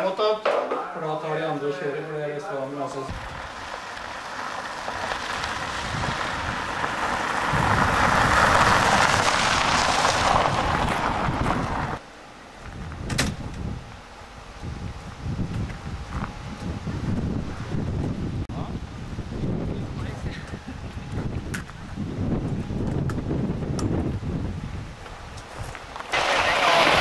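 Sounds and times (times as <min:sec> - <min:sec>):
vehicle passing on gravel road: 0:03.1 - 0:18.2, 0:20.5 - 0:27.0.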